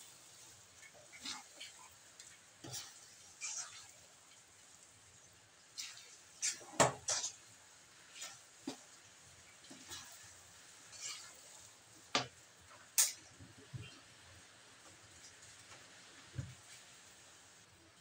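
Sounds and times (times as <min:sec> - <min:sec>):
metal spoon scraping a wok: 0:02.6 - 0:04.0, 0:09.7 - 0:11.4.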